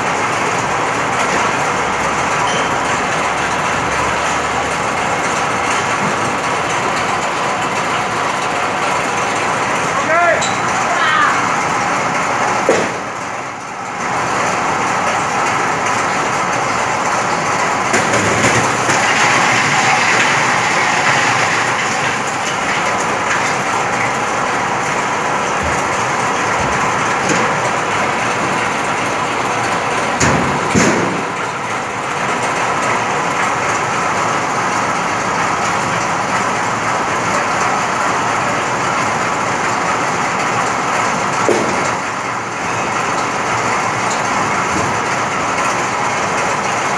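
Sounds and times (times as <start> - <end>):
ice crusher grinding ice: 17.6 - 24.7
sharp knocks: 30.2 - 31.3.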